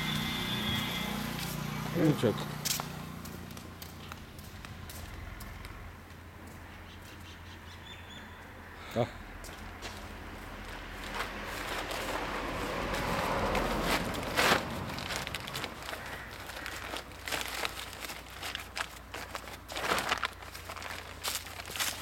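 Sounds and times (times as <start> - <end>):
plastic sack rustling: 10.6 - 22.0.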